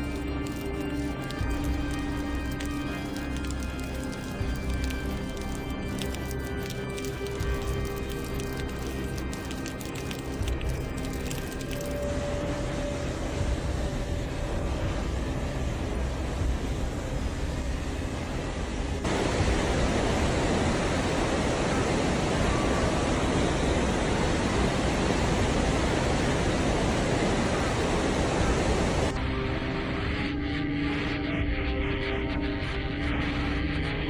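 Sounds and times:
rushing floodwater: 0:19.0 - 0:29.2.

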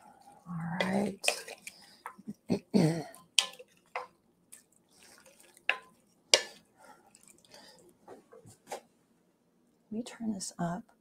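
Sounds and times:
spoon stirring thick chili: 0:00.0 - 0:07.9
spoon clacking against pot: 0:00.8 - 0:02.2, 0:03.2 - 0:04.2, 0:05.0 - 0:06.6.

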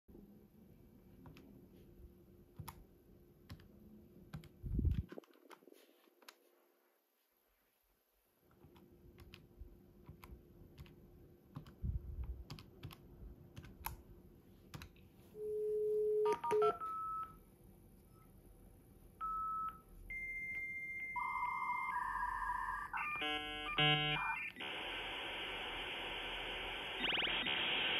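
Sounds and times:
dial tone: 0:15.4 - 0:17.3, 0:19.2 - 0:24.7
calling-tone beeps: 0:15.4 - 0:17.4, 0:19.2 - 0:24.7
touch-tone digits: 0:15.5 - 0:17.4.

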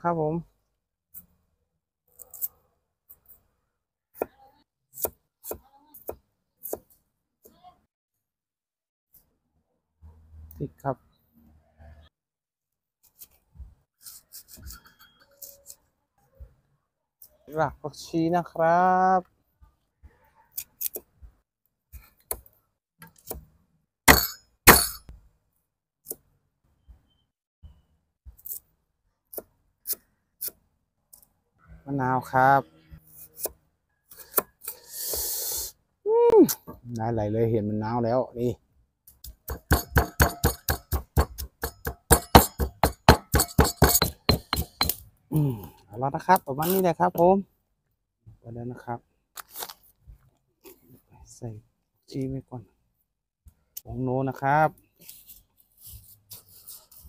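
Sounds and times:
knife scraping ginger skin: 0:02.1 - 0:03.3, 0:14.0 - 0:15.8
knife chopping on wooden block: 0:24.1 - 0:25.0, 0:39.2 - 0:45.0.

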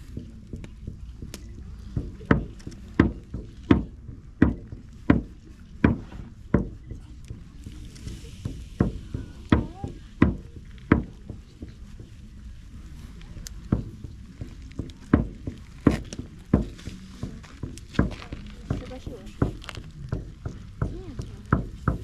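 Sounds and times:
slow percussion beats ringing: 0:00.0 - 0:12.9.

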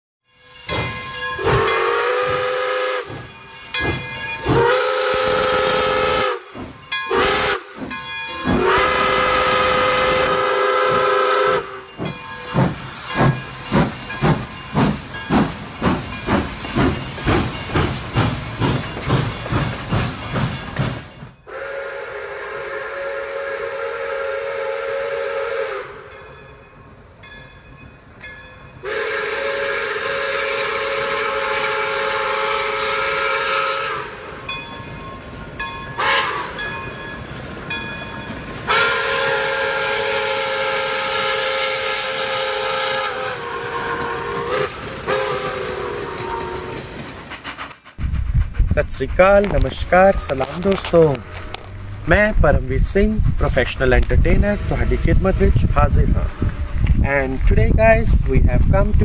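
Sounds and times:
steam locomotive whistle: 0:01.3 - 0:03.5, 0:04.4 - 0:13.4, 0:21.4 - 0:26.2, 0:28.8 - 0:34.4, 0:36.0 - 0:36.8, 0:38.5 - 0:47.0
steam engine chuffing: 0:01.4 - 0:21.8, 0:38.7 - 0:51.3
steam hissing: 0:01.4 - 0:25.4, 0:38.4 - 0:52.1.

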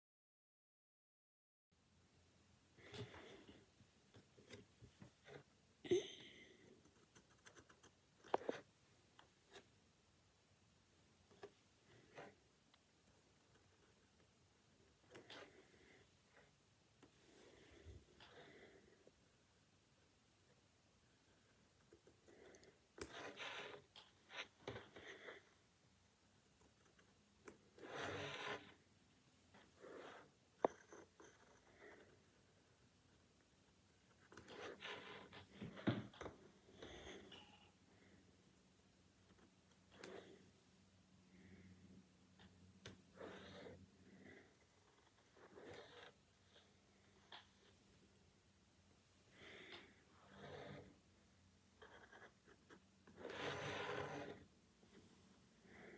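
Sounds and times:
pen scratching on paper: 0:22.0 - 0:25.5, 0:27.7 - 0:28.8, 0:29.6 - 0:32.4, 0:34.1 - 0:37.3, 0:43.1 - 0:47.8, 0:51.8 - 0:54.5.

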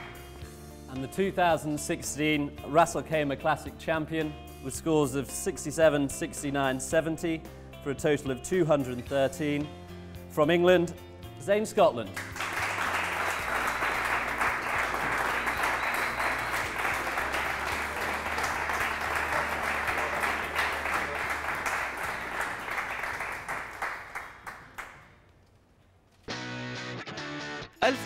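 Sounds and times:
audience applauding: 0:00.0 - 0:00.3, 0:12.2 - 0:25.2.

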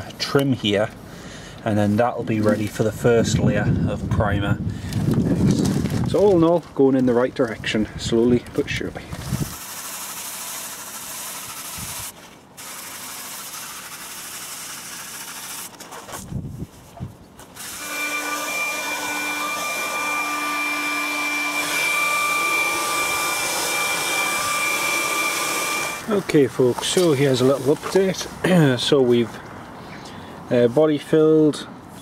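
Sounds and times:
hair dryer blowing: 0:17.6 - 0:26.2
hair dryer high whine: 0:17.6 - 0:26.2.

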